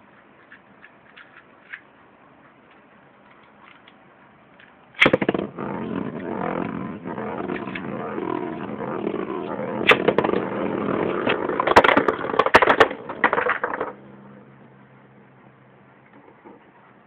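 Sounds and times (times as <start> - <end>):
ripcord launcher ratcheting rip: 5.0 - 13.0
spinning tops rattling in plastic arena: 5.0 - 14.1.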